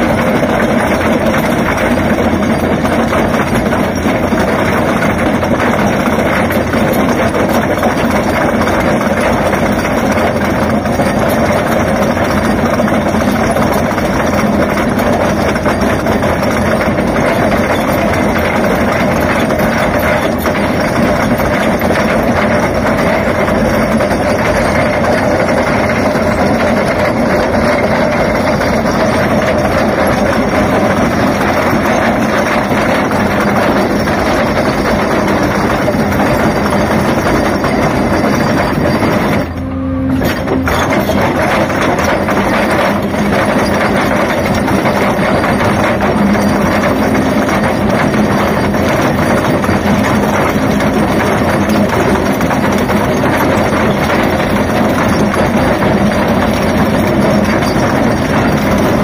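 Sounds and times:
heavy diesel engine running: 0.0s - 59.0s
trencher grinding through rocky ground: 0.0s - 59.0s.

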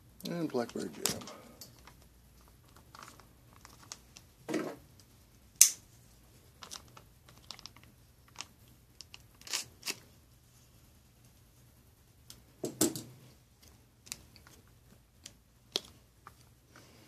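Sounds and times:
plastic pouch crinkling: 1.8s - 4.2s, 6.6s - 10.0s
sharp snap: 5.6s - 5.8s.

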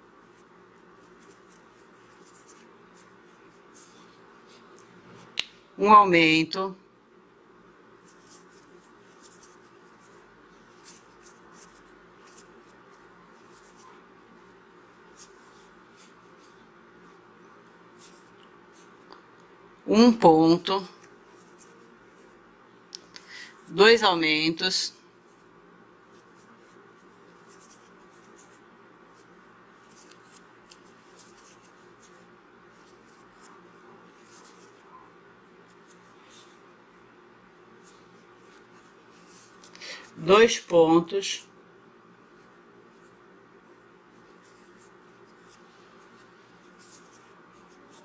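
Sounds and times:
crochet hook scratching yarn: 0.0s - 5.3s, 7.8s - 19.2s, 20.6s - 22.5s, 25.2s - 41.2s, 42.2s - 48.0s
steady low hum: 0.0s - 48.0s.

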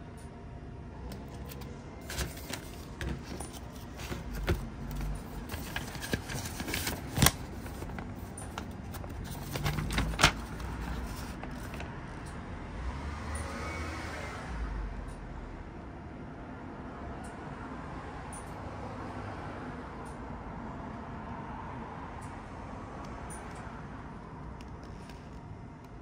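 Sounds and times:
low background noise: 0.0s - 13.1s
plastic packaging crinkling: 1.2s - 11.8s.

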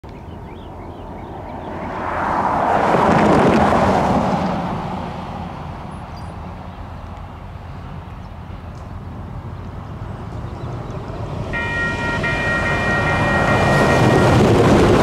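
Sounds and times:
car driving past: 1.4s - 6.1s.

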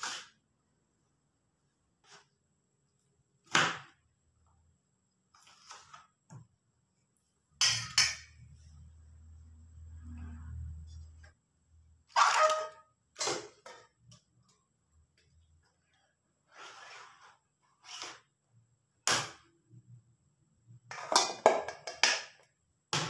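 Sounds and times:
soft scrape: 16.5s - 18.2s.

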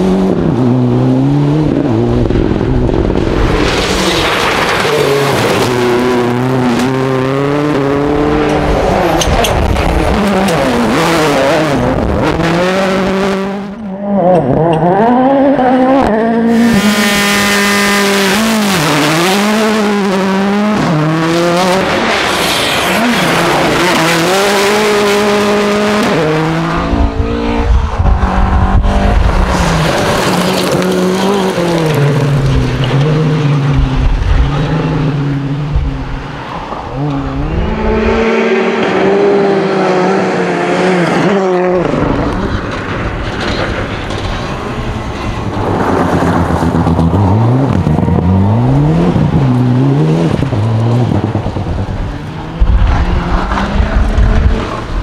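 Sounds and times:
rally car engines revving: 0.0s - 55.0s
gravel thrown from tyres: 29.6s - 33.0s.

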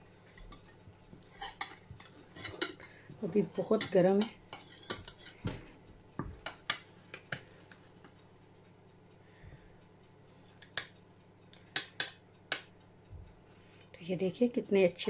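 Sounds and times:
turner clicking on glass dish: 11.6s - 12.8s.

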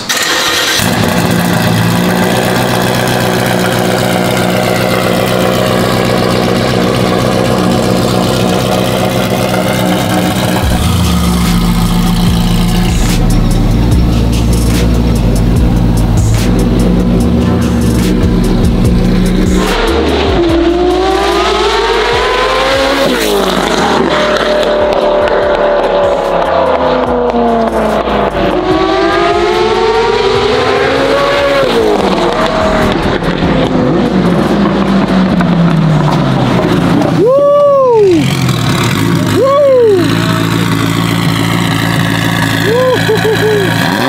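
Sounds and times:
sports car engine accelerating: 0.0s - 44.0s
engine rev blip: 10.5s - 34.0s.

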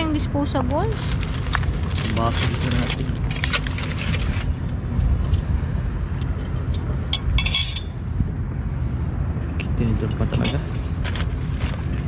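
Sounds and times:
plastic bag rustling: 0.8s - 4.5s.

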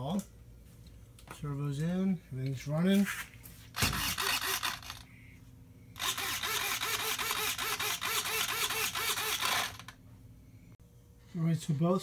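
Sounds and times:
servos whining: 3.8s - 5.4s, 6.0s - 10.0s.

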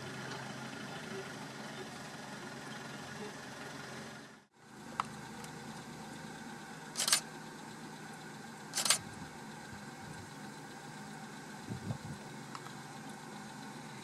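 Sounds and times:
vehicle engine idling: 0.0s - 14.0s
camera shutter clicks: 7.0s - 7.2s, 8.8s - 9.1s
low rumble: 11.6s - 12.2s.

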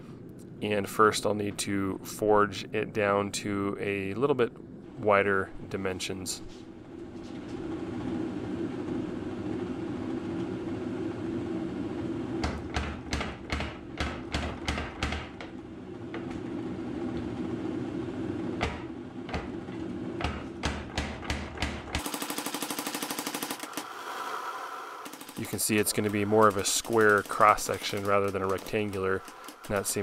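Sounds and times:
power hammer humming: 15.4s - 30.0s.

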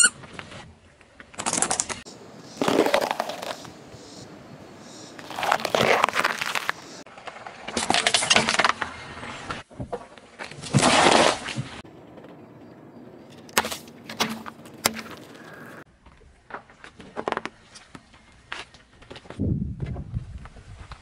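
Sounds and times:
car tyre crushing objects: 2.5s - 3.7s, 5.2s - 7.0s.

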